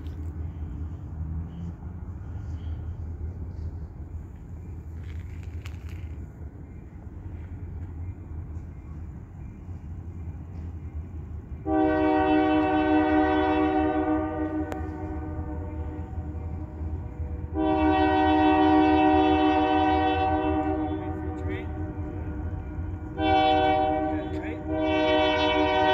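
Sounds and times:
train rumbling: 0.0s - 25.9s
locomotive air horn blasts: 11.6s - 25.9s.

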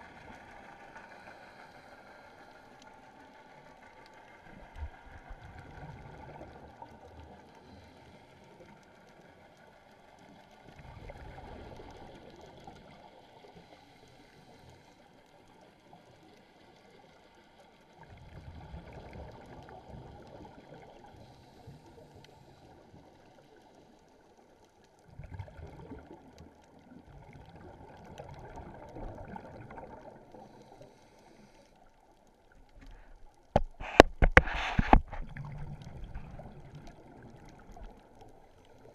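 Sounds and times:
bubbling regulator exhalations: 33.8s - 37.8s.

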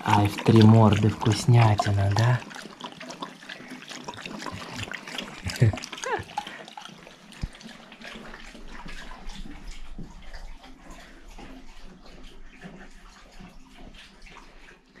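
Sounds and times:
tap water running into sink: 0.0s - 11.0s
dogs lapping water: 0.0s - 15.0s.

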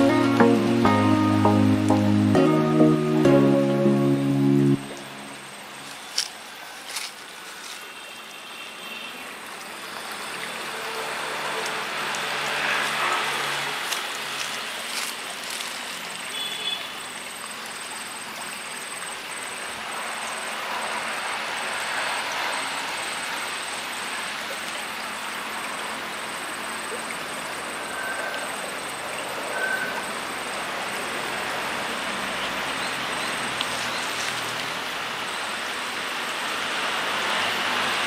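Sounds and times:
forest rushing noise: 0.0s - 8.0s, 10.0s - 17.0s, 27.4s - 38.0s.

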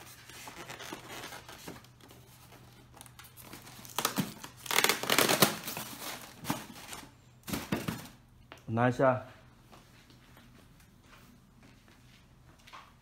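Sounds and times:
plastic wrapping crinkling: 0.0s - 8.2s.

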